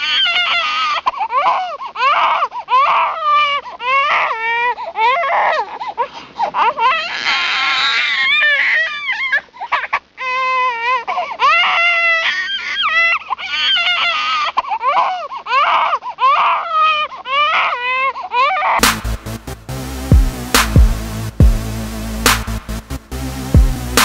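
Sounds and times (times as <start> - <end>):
electronic music with beat: 18.8 - 24.0.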